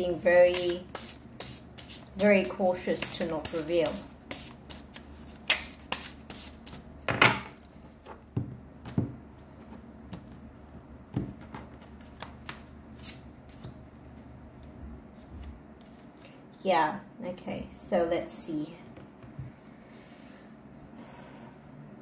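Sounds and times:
cards being shuffled: 0.4s - 2.2s, 11.8s - 14.2s.

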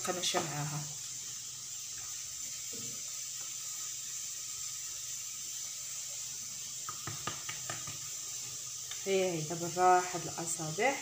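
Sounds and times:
background hiss: 0.0s - 11.0s
light taps on countertop: 6.8s - 8.1s.

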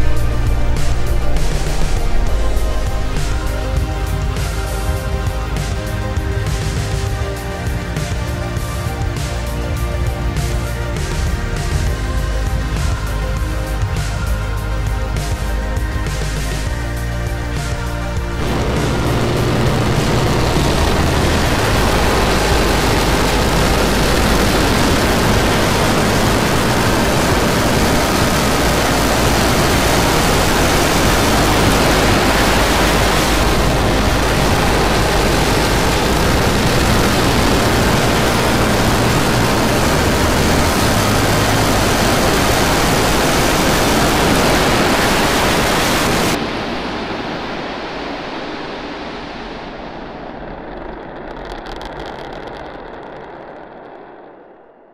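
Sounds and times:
rocket engine rumbling roar: 0.0s - 5.3s, 16.5s - 54.9s.

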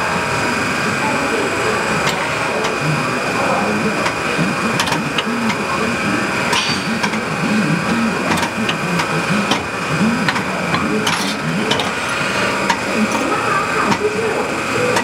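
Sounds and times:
grinder hum with high whine: 0.0s - 15.0s
loader clicks and knocks: 4.0s - 5.8s, 6.5s - 13.3s.

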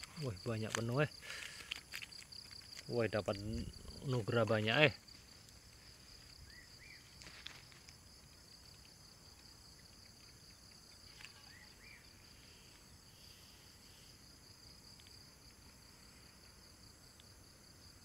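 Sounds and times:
insect chorus trilling: 0.0s - 18.0s.

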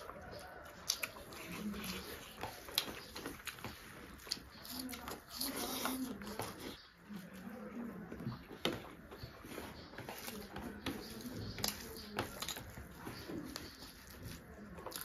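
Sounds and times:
chewing and lip smacks: 0.0s - 6.8s.

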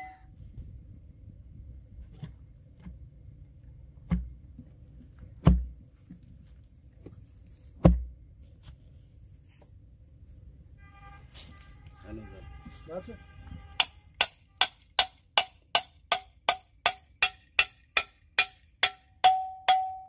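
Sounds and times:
auger thudding into soil: 5.3s - 5.8s, 7.7s - 8.2s.

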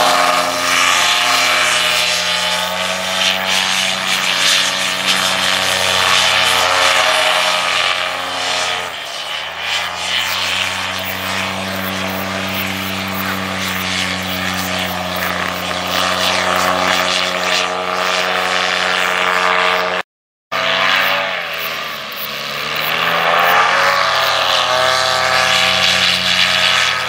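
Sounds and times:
paramotor engine buzzing: 0.0s - 27.0s.

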